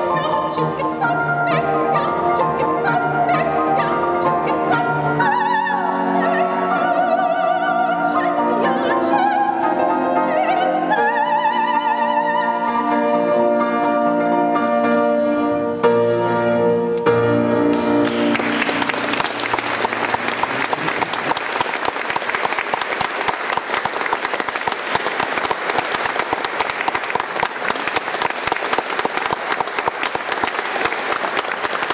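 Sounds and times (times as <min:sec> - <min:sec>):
soprano singing with piano: 0:00.0 - 0:13.6
audience applause: 0:17.7 - 0:31.9.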